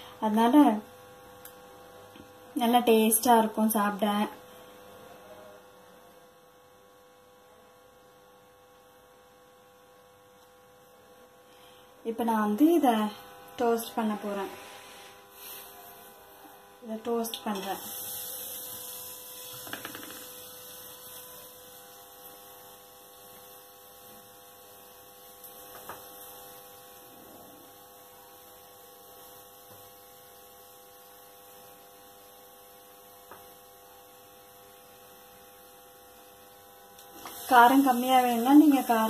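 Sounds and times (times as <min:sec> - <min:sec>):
electrical hum: 0:00.0 - 0:39.0
soft hiss: 0:13.1 - 0:39.0.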